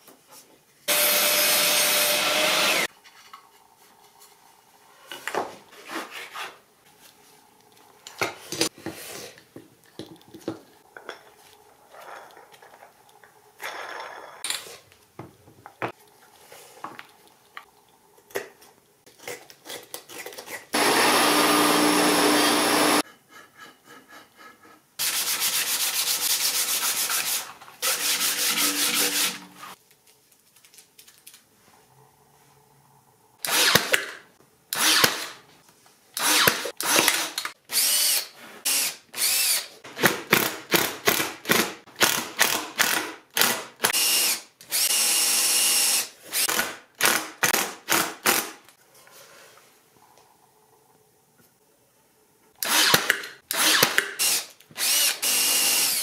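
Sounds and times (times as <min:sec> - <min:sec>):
cordless drill boring into wood: 0:00.9 - 0:02.9, 0:20.8 - 0:23.0, 0:33.4 - 0:33.9, 0:34.8 - 0:35.3, 0:36.2 - 0:39.7, 0:42.4 - 0:47.2, 0:52.6 - 0:56.0.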